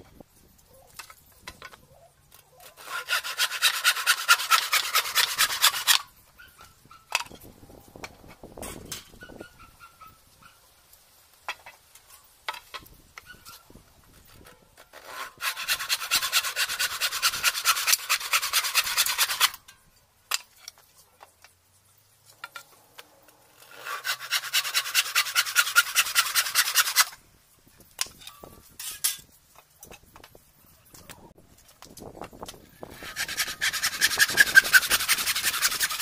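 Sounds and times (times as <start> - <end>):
handsaw cutting wood: 2.6 - 6.1, 14.9 - 19.6, 23.6 - 27.2, 32.8 - 36.0.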